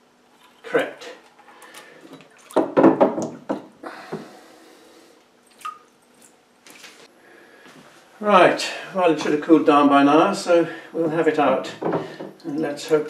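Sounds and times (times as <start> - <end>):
water dripping: 1.6 - 3.5, 5.4 - 6.4, 11.8 - 13.0.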